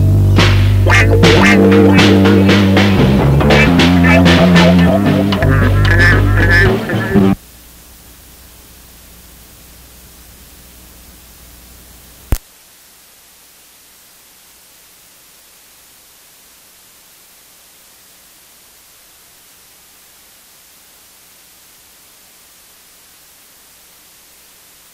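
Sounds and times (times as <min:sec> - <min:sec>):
low hum: 0:00.0 - 0:07.4
recording hiss: 0:00.0 - 0:24.9.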